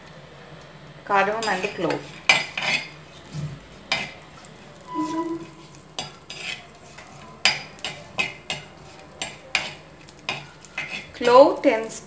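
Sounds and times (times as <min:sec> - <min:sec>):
oil sizzling: 0:00.8 - 0:12.0
metal spoon clinking against clay pot: 0:06.0 - 0:11.3.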